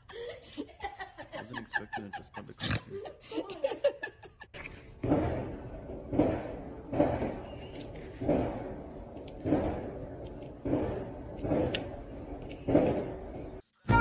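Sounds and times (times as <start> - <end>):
woman laughing: 0.0 - 4.6.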